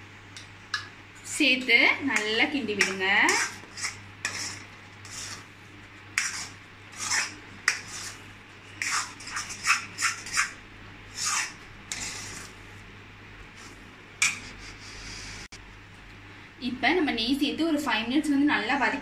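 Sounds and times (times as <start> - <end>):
spatula scraping pudding in pan: 2.1 - 12.6.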